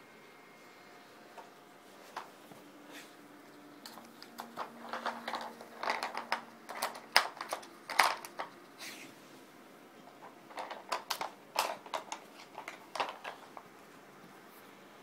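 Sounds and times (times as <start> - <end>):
plastic puzzle pieces clacking: 3.8 - 8.6, 10.2 - 13.7.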